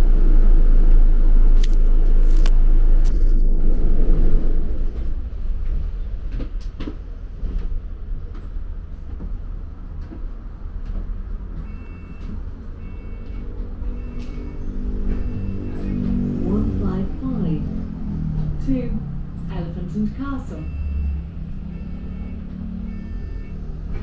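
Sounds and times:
bus engine rumble: 0.0s - 24.0s
bodywork rattles and clicks: 4.9s - 13.8s
short high beeps: 20.5s - 23.7s.

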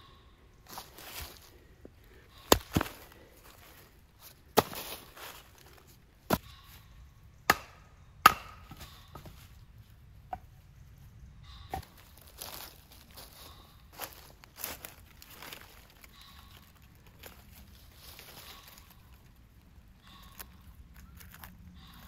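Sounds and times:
wood chopping strikes: 2.4s - 3.2s, 4.6s - 5.0s, 7.5s - 9.3s, 11.7s - 12.0s.

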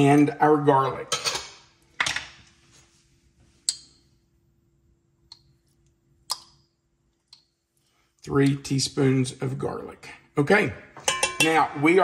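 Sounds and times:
faint steady hum: 0.0s - 12.0s
kitchen clicks and clinks: 1.1s - 2.2s, 11.0s - 11.7s.

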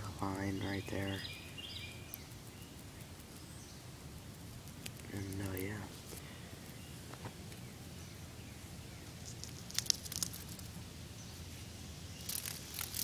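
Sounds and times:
scratchy handling noise: 9.2s - 10.8s, 12.2s - 13.0s.

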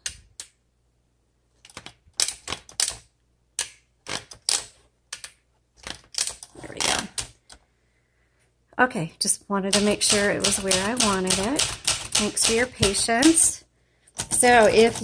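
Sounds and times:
typewriter clicks and clacks: 9.7s - 13.5s, 14.2s - 15.0s.

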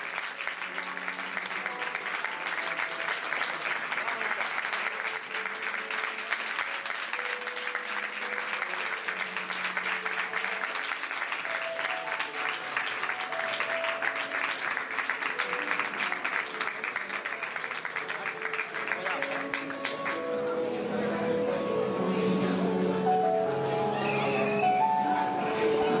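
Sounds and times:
audience applauding: 0.0s - 20.6s
quiet music: 0.0s - 26.0s.

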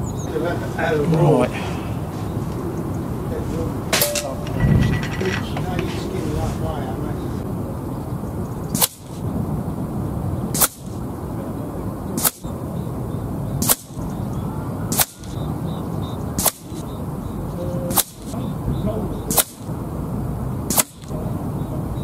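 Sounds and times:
wind noise on microphone: 1.8s - 22.0s
air rifle shots: 4.0s - 4.7s, 10.6s - 10.9s, 12.2s - 12.4s, 13.6s - 14.0s, 14.9s - 15.4s, 16.4s - 16.8s, 17.9s - 18.4s, 19.3s - 19.7s, 20.7s - 21.1s.

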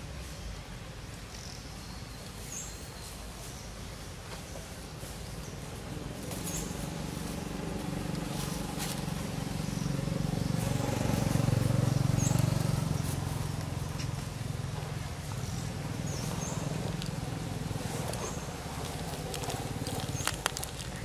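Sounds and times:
motor vehicle passing: 5.4s - 21.0s.

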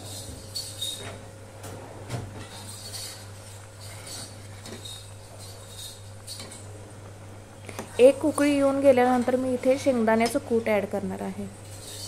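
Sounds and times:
ladle scraping a pan: 2.4s - 6.6s, 11.6s - 12.0s.

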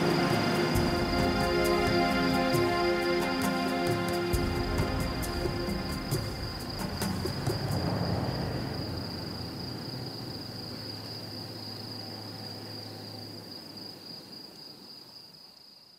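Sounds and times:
low hum: 0.0s - 11.1s
insects chirring: 0.0s - 15.9s.

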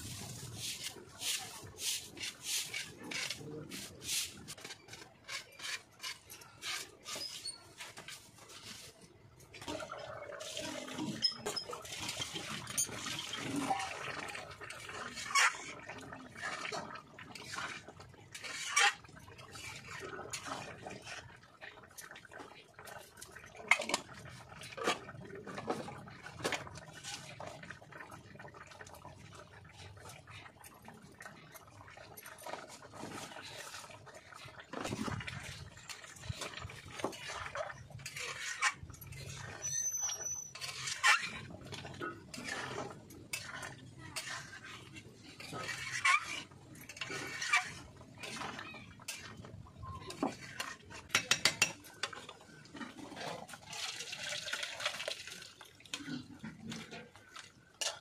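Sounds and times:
curry sizzling and bubbling: 0.0s - 58.0s
lid and utensils clanking on pan: 51.1s - 51.8s.

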